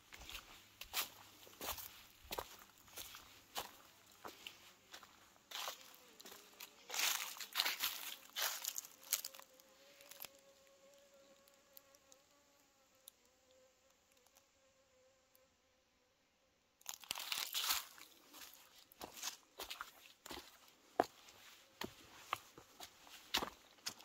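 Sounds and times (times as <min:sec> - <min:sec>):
footsteps crunching on dry leaves: 0:00.0 - 0:10.4, 0:16.8 - 0:24.0
flying insect buzzing: 0:04.8 - 0:15.7.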